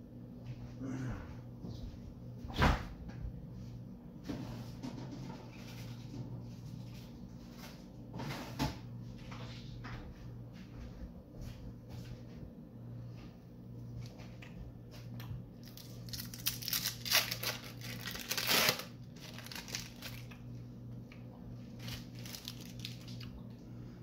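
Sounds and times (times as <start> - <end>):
steady low hum: 0.0 - 24.0
plastic wrapper crinkling and tearing: 15.6 - 20.6, 21.6 - 23.5.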